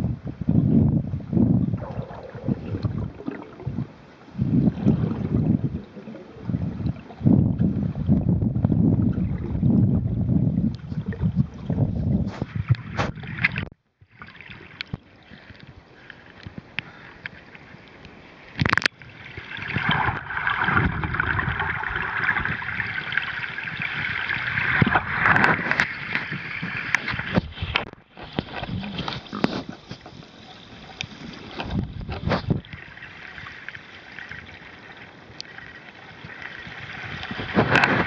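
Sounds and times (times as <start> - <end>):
underwater water rushing: 1.8 - 38.0.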